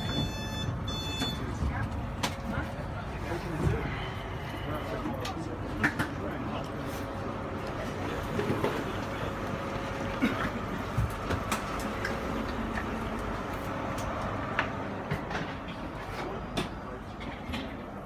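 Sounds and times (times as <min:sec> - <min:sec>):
train carriage hum: 0:00.0 - 0:18.0.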